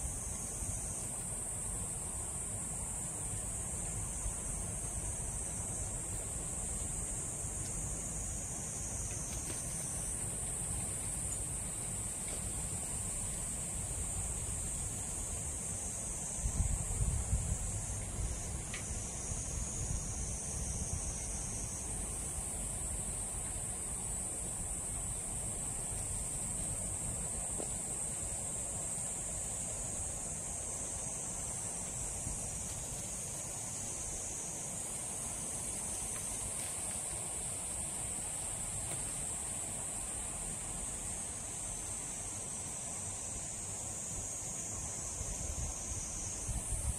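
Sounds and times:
insects droning: 0.0 - 46.9.

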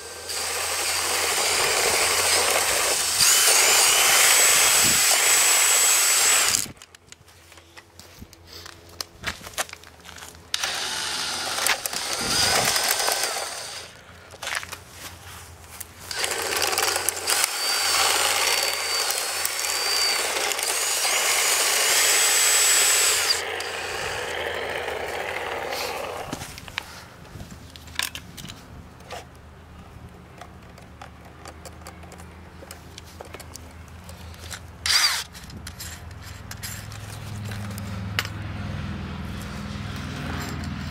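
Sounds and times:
cordless drill motor whining: 0.0 - 6.8, 10.5 - 14.0, 16.1 - 26.6, 34.9 - 35.3
trimmer line whirring through grass: 0.0 - 6.8, 10.5 - 14.0, 15.9 - 27.0.

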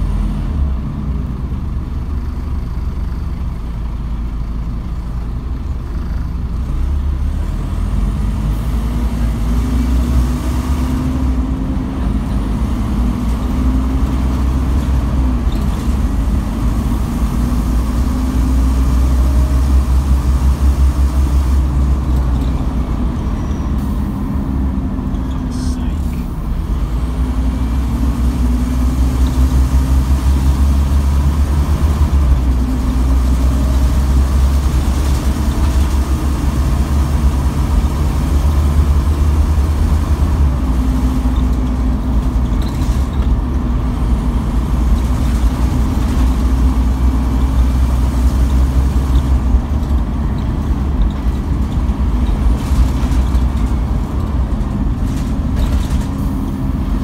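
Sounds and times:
bus diesel engine droning: 0.0 - 57.0
road noise: 0.0 - 57.0.

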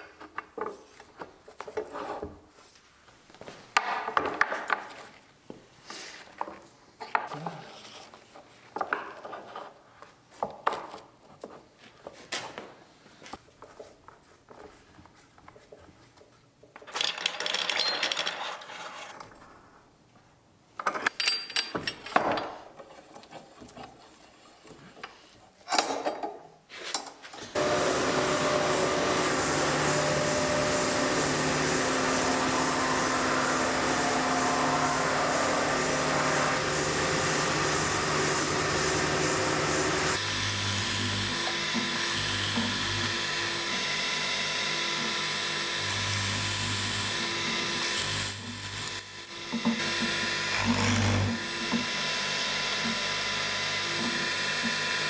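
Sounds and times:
wooden frame and clamps handled: 20.8 - 27.6
belt sander running: 27.6 - 55.0
pillar drill whining: 27.6 - 55.0.

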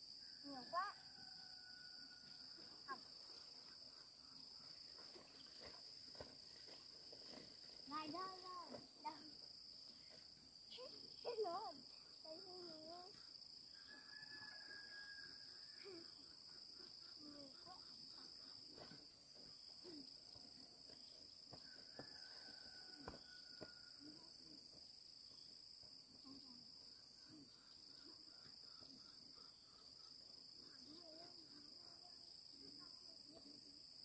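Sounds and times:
insects droning: 0.0 - 34.0.

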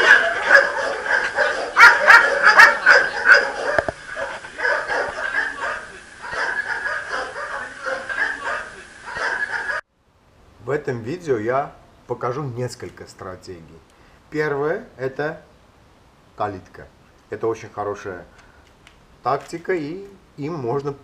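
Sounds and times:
dogs barking: 0.0 - 9.8.

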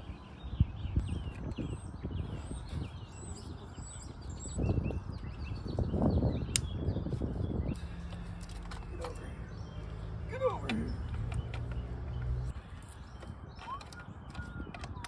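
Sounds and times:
birds chirping: 0.0 - 15.0
sharp click: 6.5 - 6.8.

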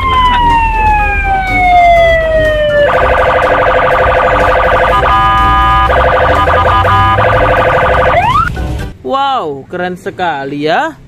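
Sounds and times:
electronic police siren: 0.0 - 8.5.

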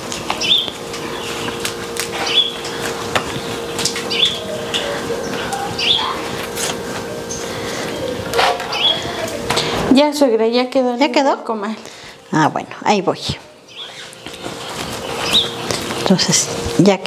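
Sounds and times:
low steady hum: 0.0 - 17.0
bird chirping: 0.4 - 1.6, 2.2 - 2.6, 3.5 - 6.2, 13.6 - 15.7.

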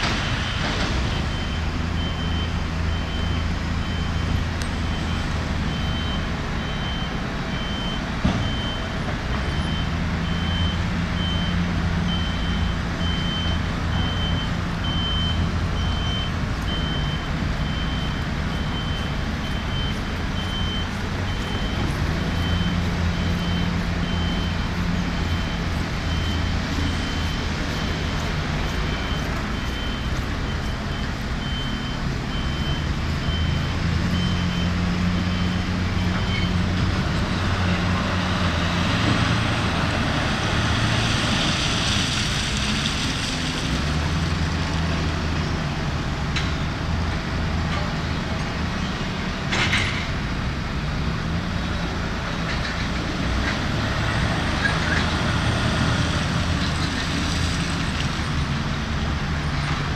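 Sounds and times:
reversing alarm beeping: 0.0 - 36.8
diesel machinery running: 0.0 - 59.9.

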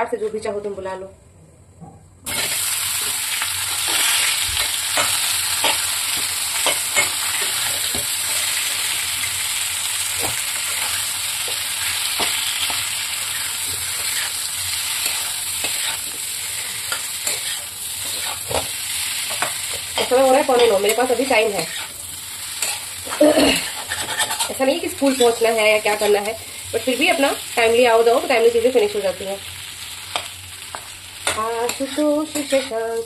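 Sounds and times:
food frying in hot oil: 2.3 - 33.0
metal spatula scraping pan: 10.2 - 26.3, 30.1 - 32.9.

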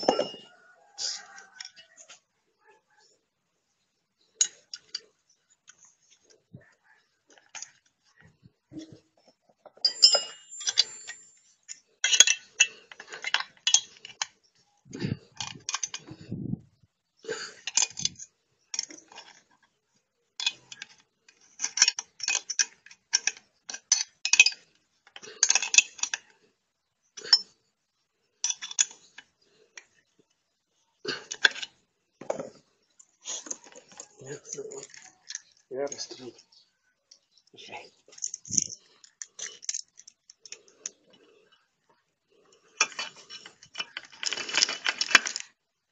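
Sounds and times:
metallic clinks and rattles: 0.0 - 2.2, 9.6 - 16.3, 17.6 - 19.7, 20.4 - 26.4, 28.4 - 30.0, 31.3 - 36.2, 38.0 - 41.6, 42.4 - 45.6.

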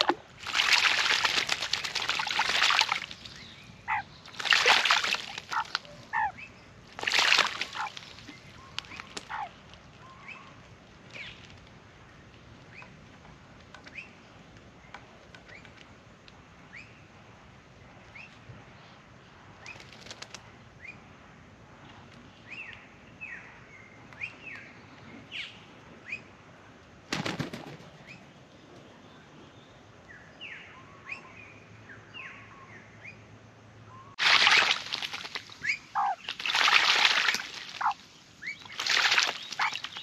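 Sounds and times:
bird wings splashing water: 0.0 - 3.4, 4.3 - 5.9, 6.9 - 9.5, 34.2 - 40.0
wings flapping: 0.5 - 3.0, 19.7 - 20.4, 27.1 - 28.0, 38.8 - 40.0.

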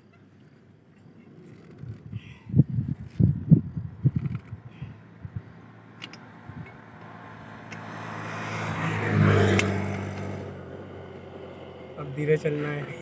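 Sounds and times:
vehicle driving past: 4.9 - 13.0.

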